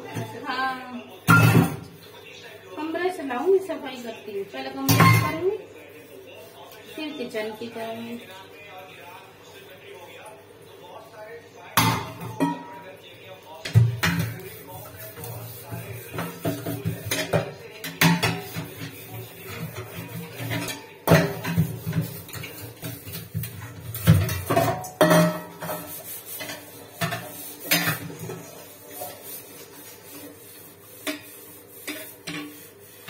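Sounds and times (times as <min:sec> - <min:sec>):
metal utensils clanking in a sink: 0:01.2 - 0:01.9, 0:04.8 - 0:05.6, 0:11.8 - 0:12.9, 0:13.6 - 0:33.0.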